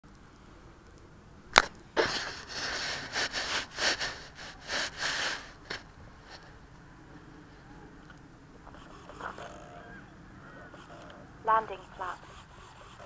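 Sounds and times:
scratchy handling noise: 0:01.6 - 0:06.6.

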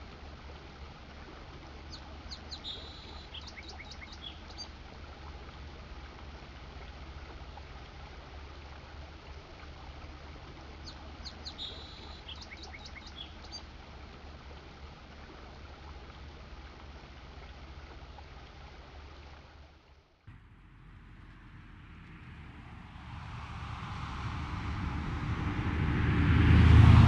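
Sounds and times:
low hiss and hum: 0:00.0 - 0:27.0
songbird singing: 0:01.9 - 0:04.8, 0:10.8 - 0:13.7.

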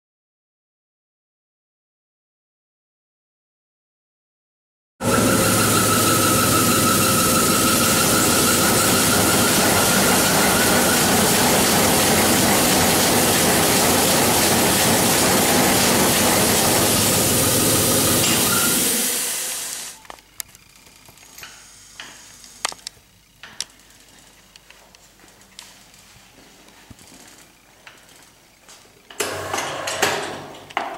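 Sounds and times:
weaving loom running: 0:05.0 - 0:20.0.

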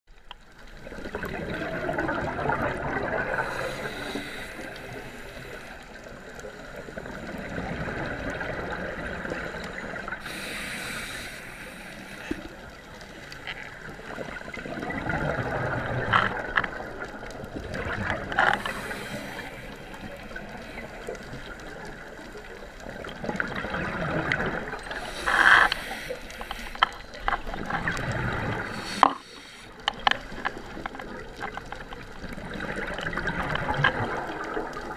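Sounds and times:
regulator exhaled bubbles gurgling: 0:00.7 - 0:11.1, 0:11.9 - 0:34.9
hissing breath through regulator: 0:03.3 - 0:07.5, 0:09.3 - 0:12.7, 0:18.5 - 0:21.2, 0:24.8 - 0:27.2, 0:28.5 - 0:29.9.

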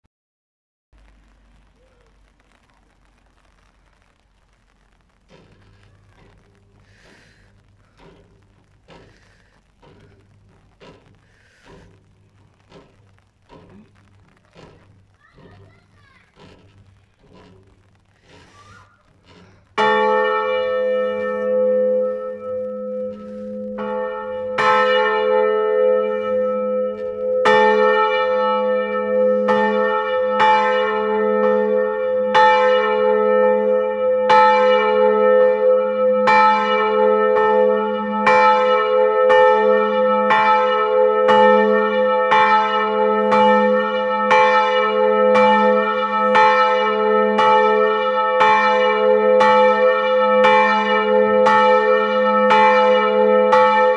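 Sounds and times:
church bell ringing: 0:19.8 - 0:53.9.

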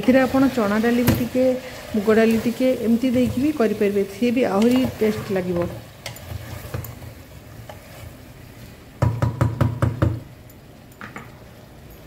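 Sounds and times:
wooden spatula knocking on metal pot: 0:09.0 - 0:10.3.

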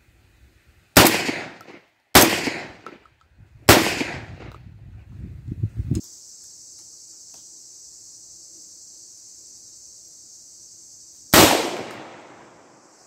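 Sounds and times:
shotgun shot echoing: 0:01.0 - 0:03.0, 0:03.7 - 0:04.5, 0:11.3 - 0:12.7
insects buzzing: 0:05.2 - 0:13.0.

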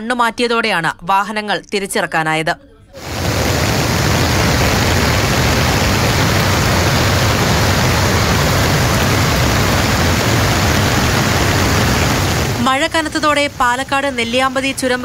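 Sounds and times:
floodwater rushing: 0:03.0 - 0:15.0.

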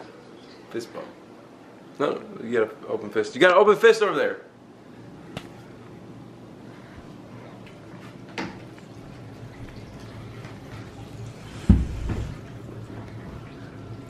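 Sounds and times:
dull thud of jug: 0:11.7 - 0:12.4.

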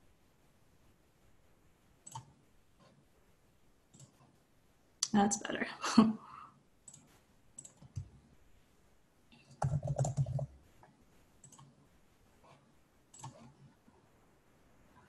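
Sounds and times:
computer mouse clicks: 0:02.0 - 0:03.0, 0:03.9 - 0:04.4, 0:06.8 - 0:08.2, 0:09.4 - 0:10.5, 0:11.4 - 0:11.8, 0:12.5 - 0:13.7
keyboard typing: 0:02.0 - 0:03.0, 0:03.9 - 0:04.4, 0:06.8 - 0:08.2, 0:09.4 - 0:11.8, 0:12.4 - 0:13.7.

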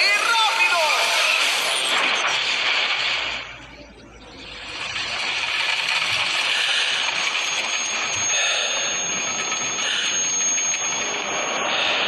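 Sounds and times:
high ringing tone: 0:01.1 - 0:12.0.

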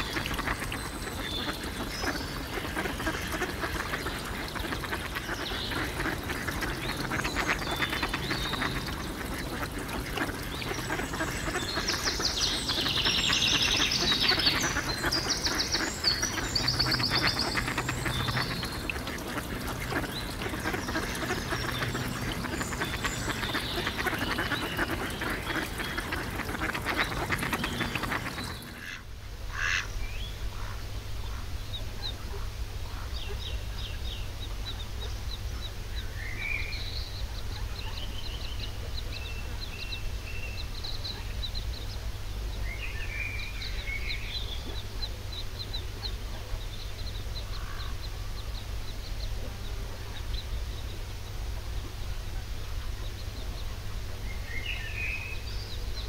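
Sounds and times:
ducks quacking: 0:00.0 - 0:29.9.

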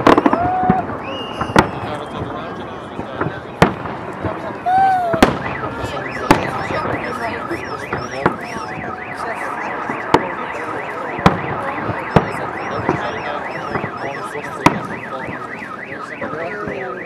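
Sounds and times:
car alarm wailing: 0:00.0 - 0:03.0, 0:04.6 - 0:17.0
fireworks bangs: 0:00.0 - 0:17.0.

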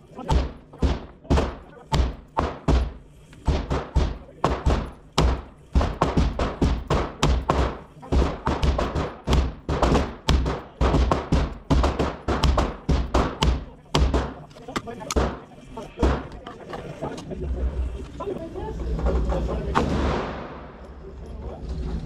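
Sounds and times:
gunshots echoing indoors: 0:00.2 - 0:14.4, 0:19.8 - 0:20.8.

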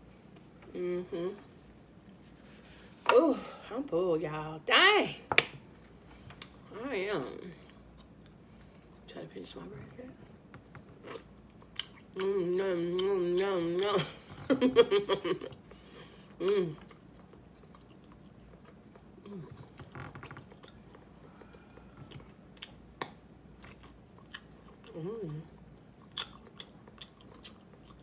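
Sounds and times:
person humming: 0:00.7 - 0:01.4
wet chewing and smacking: 0:10.6 - 0:12.3, 0:16.4 - 0:28.0.

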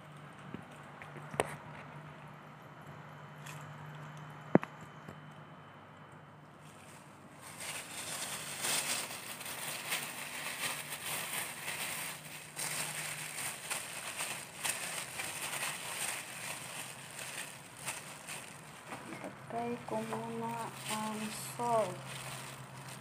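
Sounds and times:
plastic gloves crinkling: 0:06.6 - 0:23.0.

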